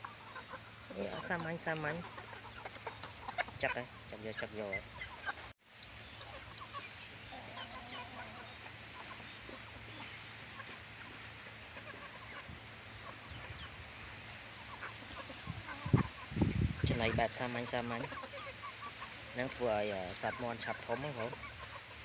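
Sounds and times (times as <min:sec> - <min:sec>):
chickens clucking softly: 0:00.0 - 0:22.0.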